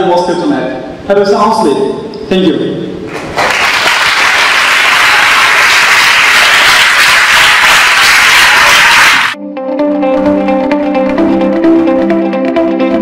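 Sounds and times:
audience applauding: 3.1s - 9.4s.

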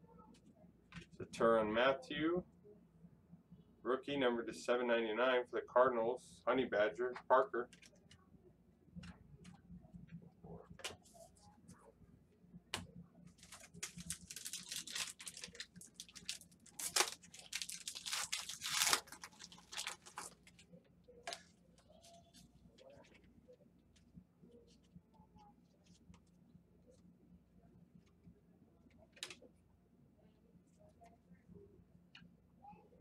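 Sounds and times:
wrapper tearing and crinkling: 13.4s - 20.6s.

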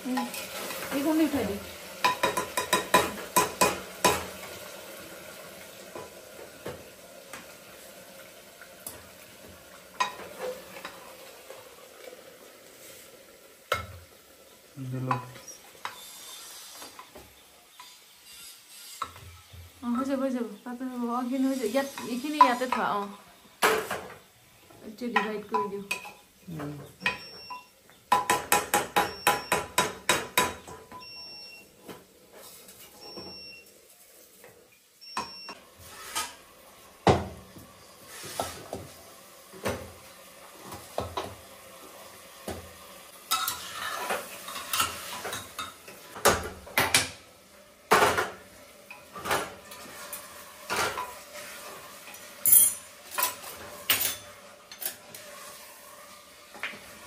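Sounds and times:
steel bowls and utensils clanking: 2.0s - 4.6s, 10.0s - 11.1s, 43.3s - 47.2s, 47.9s - 55.4s
metal ladle scraping in a pot: 18.2s - 19.2s, 35.8s - 36.4s, 43.3s - 45.7s.

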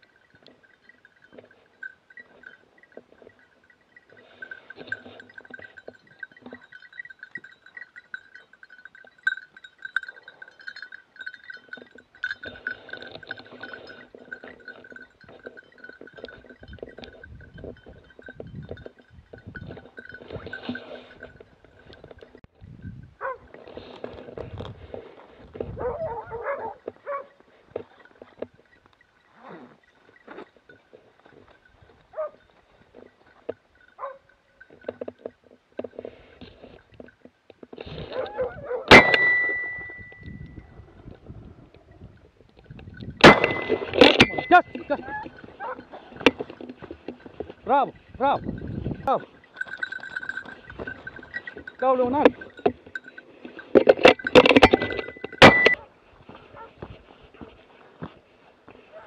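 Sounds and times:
small bells tinkling: 0.0s - 24.4s, 26.6s - 38.2s, 38.9s - 55.8s
dog yelping: 25.8s - 27.3s.

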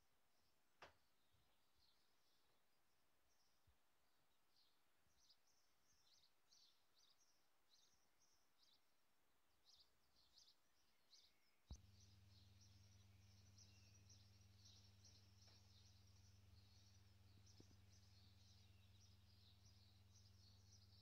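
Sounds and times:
songbirds chirping: 0.0s - 21.0s
steady low hum: 11.7s - 21.0s.

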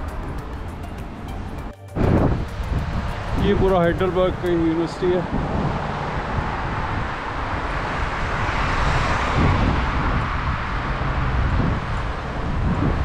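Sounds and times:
steady low traffic rumble: 0.0s - 13.0s
car passing by: 1.4s - 13.0s.

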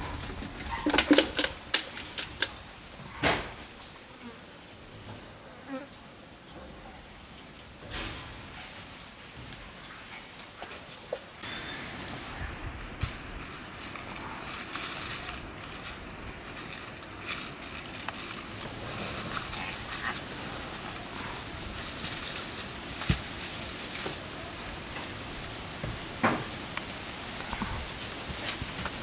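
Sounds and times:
leaves rustling: 0.0s - 29.0s
monkeys scuffling on mat: 10.3s - 29.0s.

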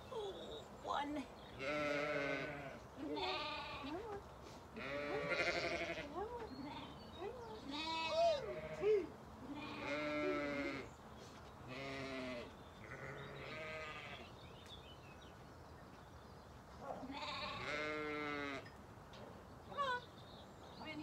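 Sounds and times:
sheep bleating: 1.6s - 4.0s, 4.8s - 7.0s, 7.7s - 10.9s, 11.7s - 14.3s, 17.1s - 18.6s.

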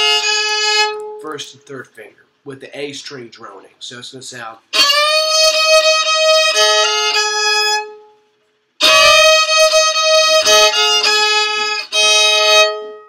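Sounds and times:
fiddle double-stop playing: 0.0s - 1.5s, 4.7s - 8.2s, 8.8s - 13.0s.

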